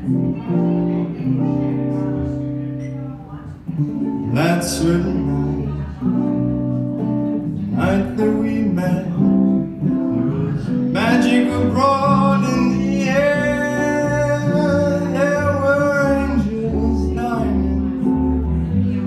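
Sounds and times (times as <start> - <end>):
jazz combo playing ballad: 0.0 - 19.0
man singing long notes: 10.1 - 19.0.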